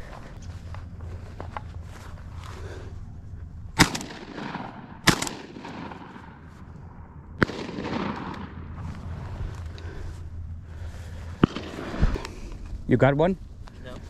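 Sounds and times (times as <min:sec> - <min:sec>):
shotgun shots with echo: 0:03.8 - 0:06.4, 0:07.4 - 0:08.7, 0:11.4 - 0:12.2.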